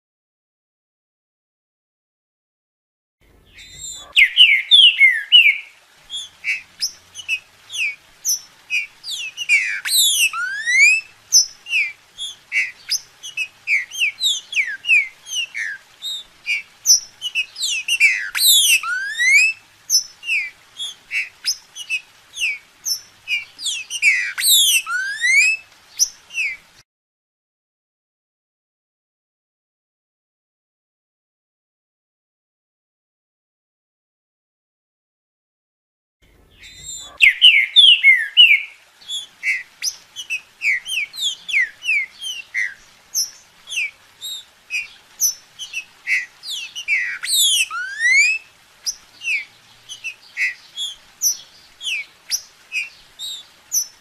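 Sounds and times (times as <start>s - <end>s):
bird singing whistled notes: 3.5s - 26.6s, 36.5s - 54.0s.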